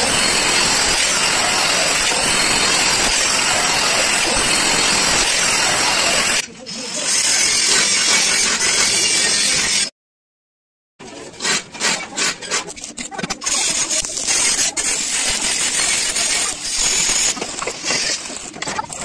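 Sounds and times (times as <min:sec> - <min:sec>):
steel pieces clinking and scraping: 0:12.6 - 0:19.0.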